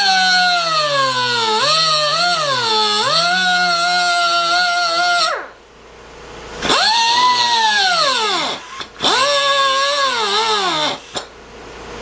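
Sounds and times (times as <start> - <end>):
rotary tool cutoff wheel whining: 0.0 - 5.5, 6.6 - 11.3.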